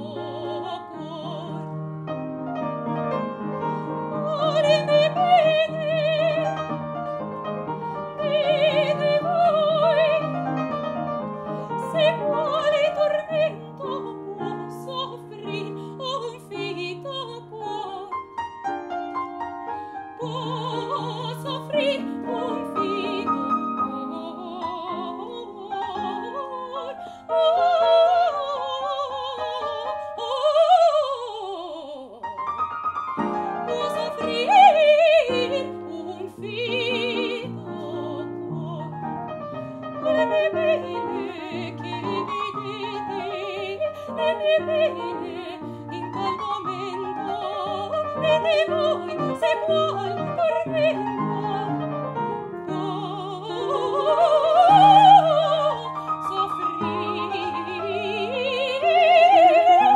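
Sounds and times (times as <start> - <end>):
woman singing opera with vibrato: 0.0 - 1.8, 3.7 - 7.0, 7.7 - 18.4, 19.8 - 32.4, 33.2 - 59.9
upright piano: 0.0 - 59.9.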